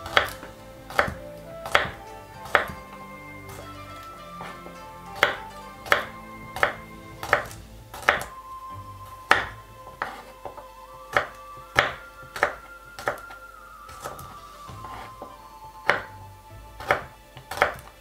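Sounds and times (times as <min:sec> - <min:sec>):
background music: 0:00.0 - 0:18.0
knife chopping on wooden board: 0:16.8 - 0:17.9.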